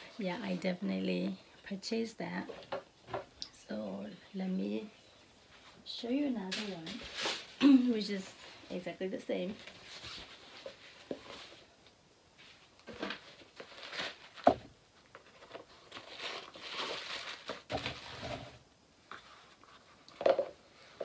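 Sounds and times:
tissue paper rustling: 5.5s - 8.7s, 9.4s - 11.7s, 12.4s - 14.5s, 15.1s - 20.1s.

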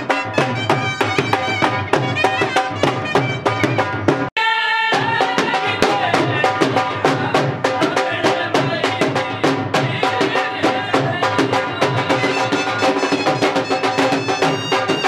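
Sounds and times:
wind instrument melody: 0.0s - 6.0s, 12.0s - 15.0s
drums beaten with sticks: 0.0s - 15.0s.

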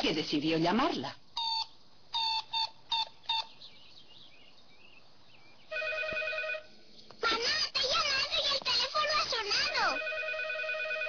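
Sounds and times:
toy telephone button beeps: 1.4s - 3.5s
telephone ringing: 5.7s - 6.7s, 9.7s - 11.0s.

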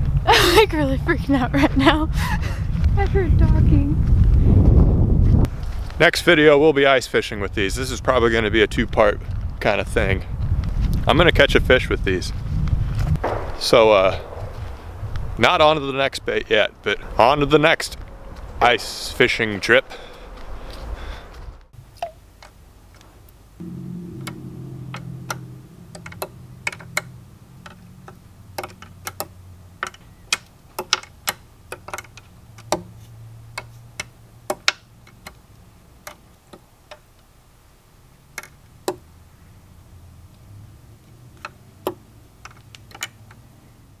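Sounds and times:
low hum: 23.6s - 29.8s.

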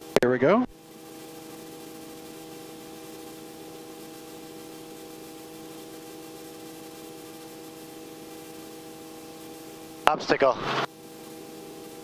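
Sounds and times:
helicopter cockpit noise: 10.0s - 10.9s.

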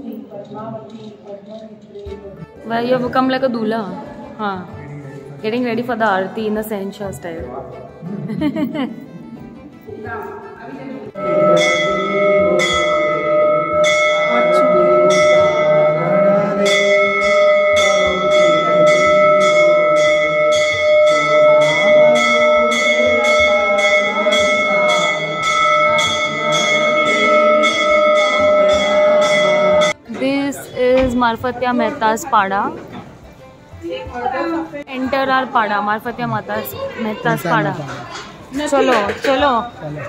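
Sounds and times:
voices: 10.0s - 32.9s
temple bell ringing: 11.2s - 30.2s.

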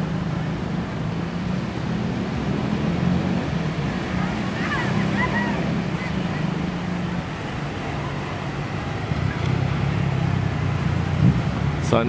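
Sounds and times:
surf washing: 0.0s - 12.0s.

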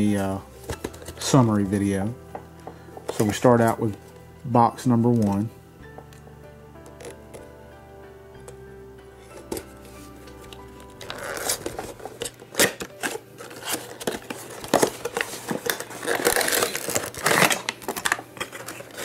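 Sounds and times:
card and plastic tearing and rustling: 0.0s - 1.8s, 2.7s - 4.2s, 6.9s - 7.5s, 9.3s - 19.0s.

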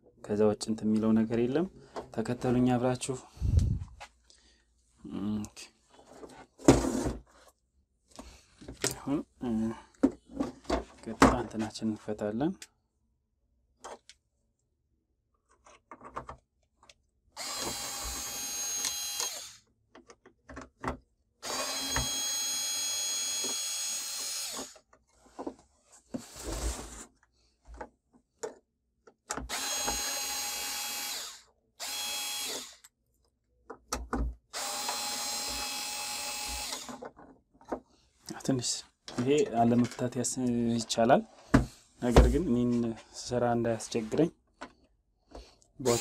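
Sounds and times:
electric screwdriver whirring: 17.4s - 19.6s, 21.4s - 24.8s, 29.5s - 32.8s, 34.5s - 37.0s.

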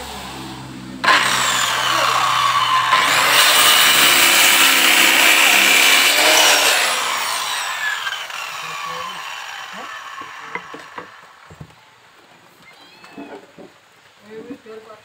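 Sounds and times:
circular saw cutting wood: 0.0s - 11.6s.

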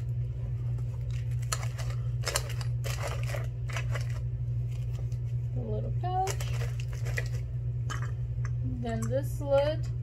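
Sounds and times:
steady low hum: 0.0s - 10.0s
plastic wrapping crinkling: 1.0s - 5.4s, 6.2s - 7.5s.

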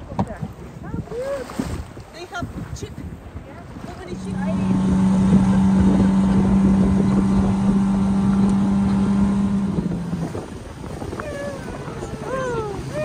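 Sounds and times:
outboard motor droning: 3.6s - 13.0s.

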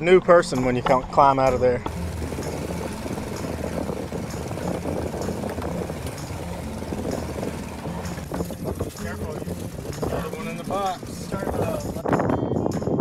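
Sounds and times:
boat engine running: 1.8s - 12.1s
water churning along hull: 1.9s - 12.1s.

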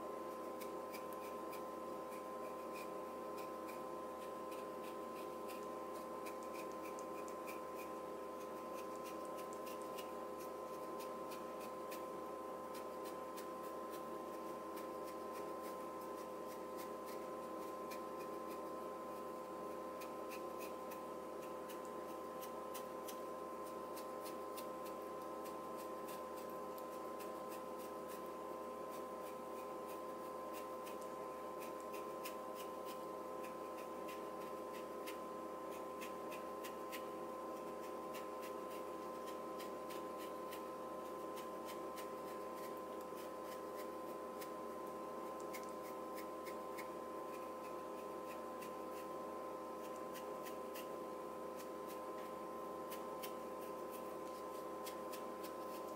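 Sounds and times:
steady hum with tones: 0.0s - 55.9s.

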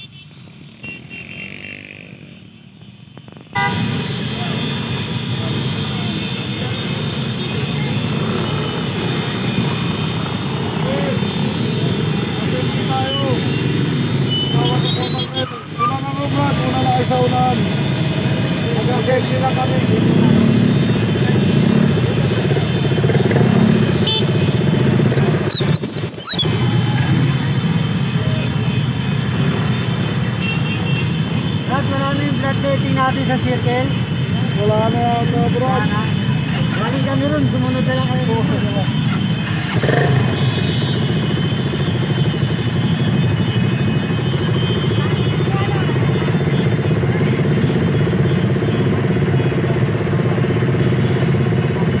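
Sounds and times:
scooter and motorcycle engines rumbling: 0.0s - 52.0s.

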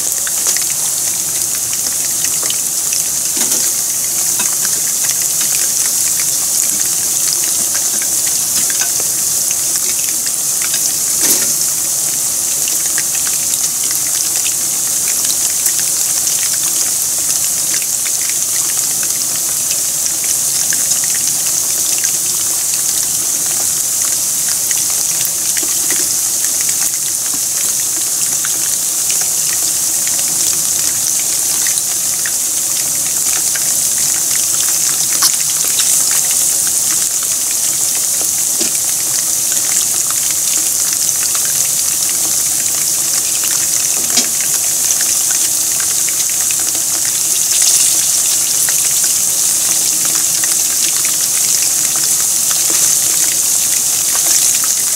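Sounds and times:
food deep-frying in oil: 0.0s - 54.9s.

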